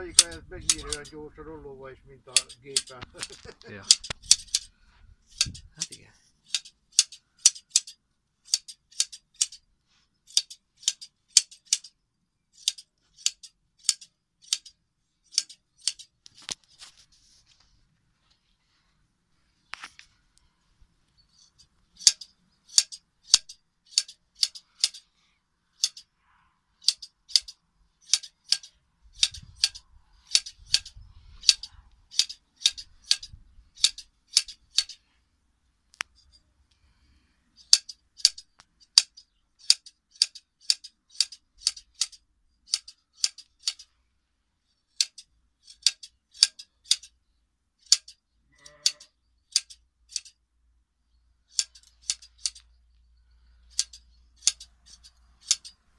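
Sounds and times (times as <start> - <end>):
shears snipping fleece: 5.3 - 9.6.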